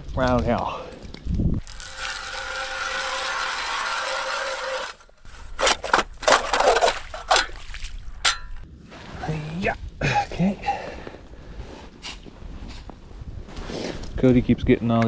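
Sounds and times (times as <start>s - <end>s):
ice auger grinding through ice: 1.6s - 7.4s.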